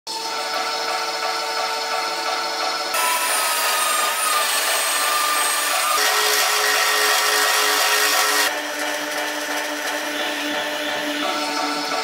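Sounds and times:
mitre saw cutting aluminium: 2.9s - 11.1s.

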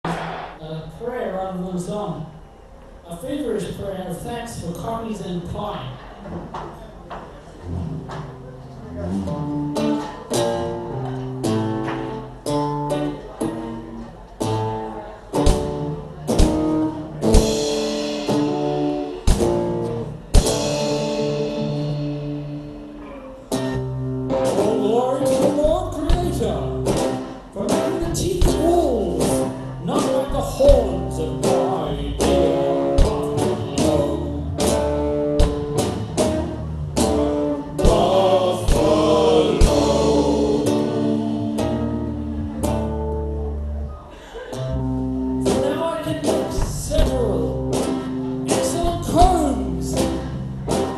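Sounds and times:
acoustic and electric guitars: 0.0s - 0.6s, 7.6s - 50.9s
drum kit: 0.0s - 0.7s, 15.4s - 42.9s, 45.3s - 50.9s
person singing: 37.8s - 41.5s.

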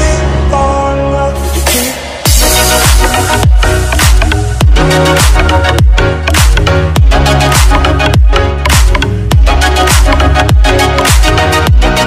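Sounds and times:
deep bass drum hits: 2.3s - 7.2s.

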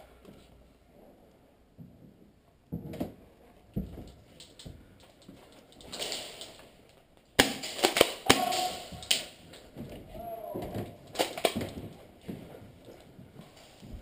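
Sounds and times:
airsoft gunfire cracks: 7.4s - 9.3s.

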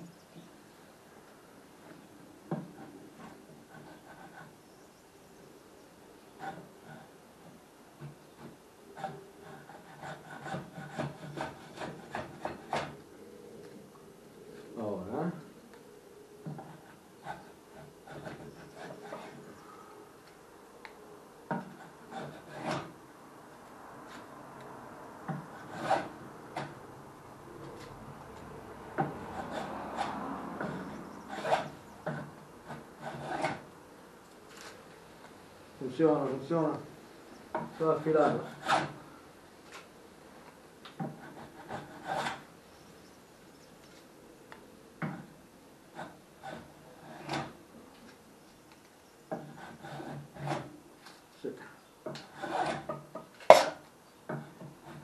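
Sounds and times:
hand tool scraping wood: 1.8s - 4.6s, 6.4s - 13.0s, 16.4s - 19.7s, 21.5s - 23.0s, 25.3s - 26.8s, 27.6s - 33.7s, 36.1s - 39.0s, 40.9s - 42.5s, 45.9s - 47.6s, 49.3s - 50.8s, 52.0s - 55.0s.

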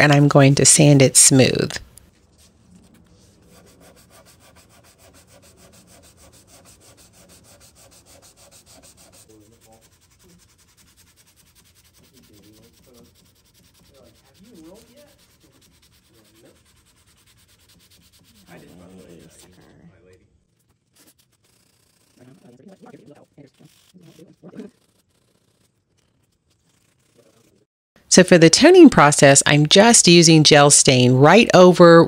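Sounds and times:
sandpaper scratching on wood: 2.3s - 19.8s, 20.5s - 27.7s.

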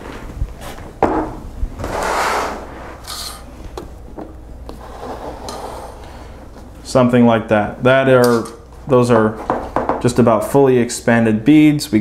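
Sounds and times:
plastic parts rubbing slide: 1.8s - 3.5s.

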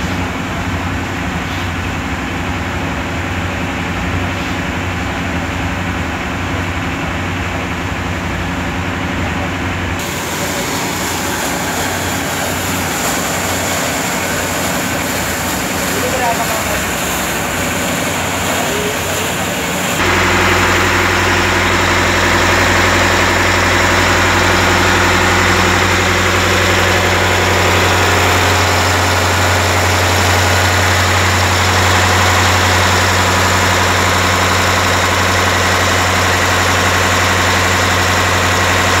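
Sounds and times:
diesel engine droning: 0.0s - 39.0s
water splashing: 10.0s - 39.0s.

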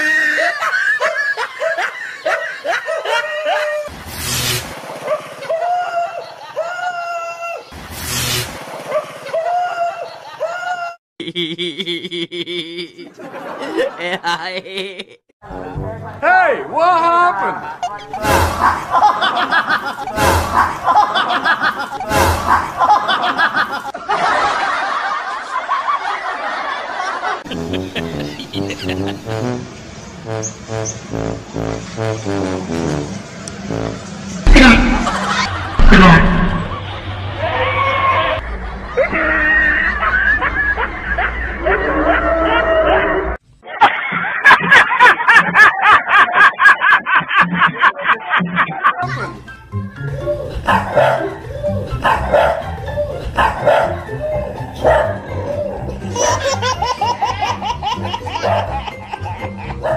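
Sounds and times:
snickering laugh sound effect: 0.1s - 3.9s, 9.2s - 15.2s, 17.7s - 29.7s, 34.5s - 37.0s, 38.9s - 49.4s, 54.0s - 59.9s
sharp thump: 34.5s - 35.2s, 35.8s - 36.8s.

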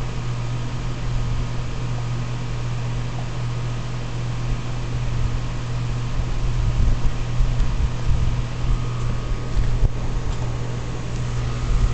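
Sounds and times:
air conditioner humming: 0.0s - 11.9s.

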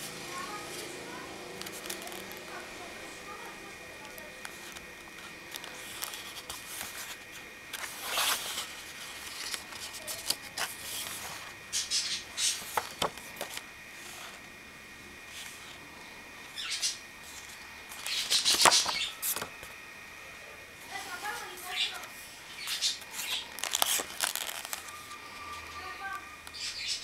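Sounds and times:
paper pages rustling and scraping: 0.4s - 2.6s, 4.0s - 14.5s, 15.3s - 15.8s, 17.2s - 19.7s, 20.9s - 26.1s.

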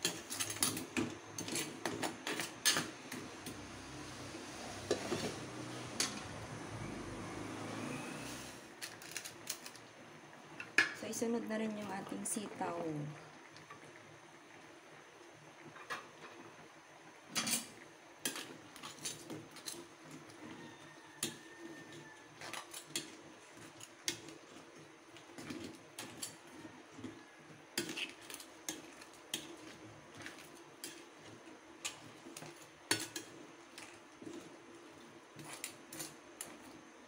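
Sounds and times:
metal spatula scraping a pot: 0.0s - 3.2s, 17.4s - 36.8s.

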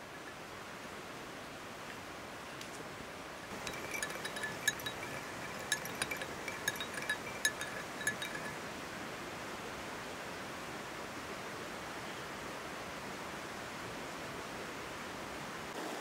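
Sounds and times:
teaspoons clinking against glasses: 3.5s - 8.6s.

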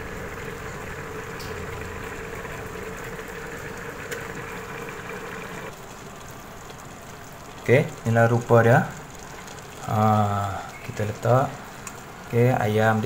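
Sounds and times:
multicooker humming: 0.0s - 5.7s.

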